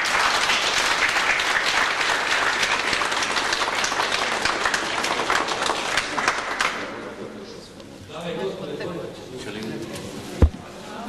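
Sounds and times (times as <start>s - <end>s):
people applauding: 0.0s - 7.2s.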